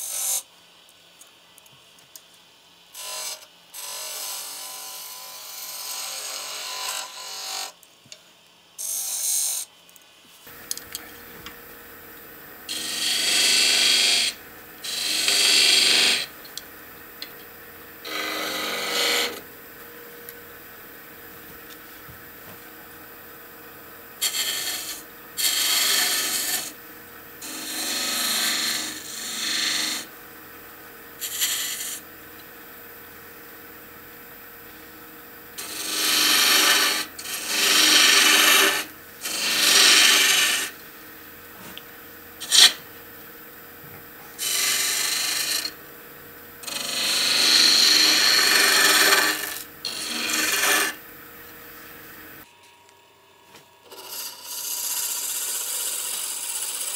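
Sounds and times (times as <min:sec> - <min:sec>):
lathe humming: 0:10.5 - 0:23.0, 0:23.6 - 0:33.3, 0:34.6 - 0:52.5
turning tool scraping wood: 0:12.7 - 0:16.3, 0:18.0 - 0:19.4, 0:24.2 - 0:26.8, 0:27.4 - 0:30.1, 0:31.2 - 0:32.0, 0:35.6 - 0:40.8, 0:42.4 - 0:42.8, 0:44.3 - 0:45.8, 0:46.6 - 0:51.0, 0:53.9 - 0:56.9.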